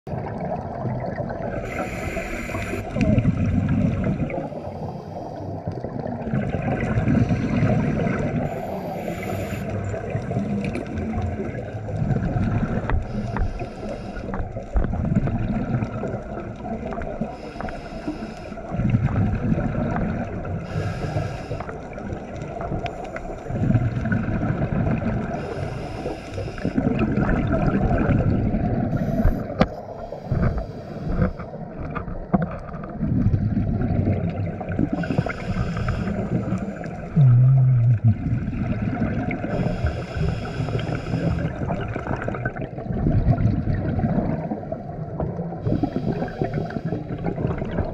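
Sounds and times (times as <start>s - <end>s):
exhaled bubbles rumbling: 0.1s - 47.9s
regulator hiss on inhale: 1.6s - 3.0s, 4.4s - 5.7s, 7.1s - 10.0s, 12.8s - 14.8s, 17.2s - 18.8s, 20.6s - 22.2s, 22.8s - 24.0s, 25.3s - 26.9s, 28.9s - 31.5s, 34.9s - 37.2s, 39.5s - 41.7s, 45.6s - 47.2s.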